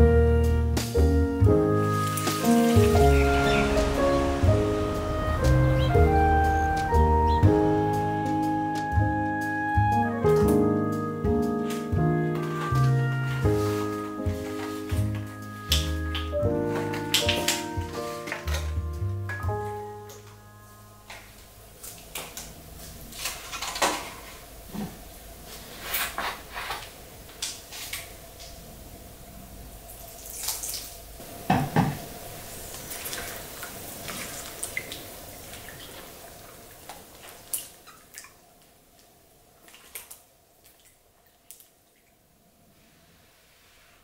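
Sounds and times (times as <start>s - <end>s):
water dripping: 1.8s - 9.6s, 14.2s - 24.0s, 29.7s - 42.3s.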